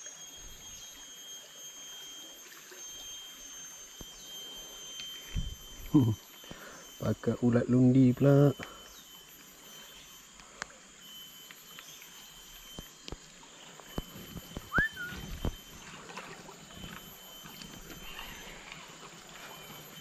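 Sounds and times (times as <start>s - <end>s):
faint insect drone: 0.0s - 20.0s
short rising chirp: 13.9s - 15.9s.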